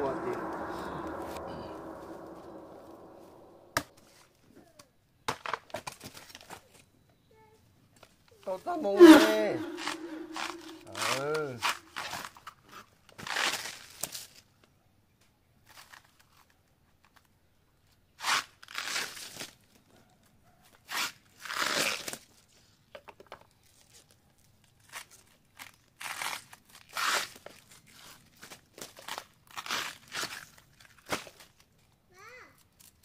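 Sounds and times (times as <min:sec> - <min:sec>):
banana sheaths tearing and crunching: 0:25.6 - 0:27.3.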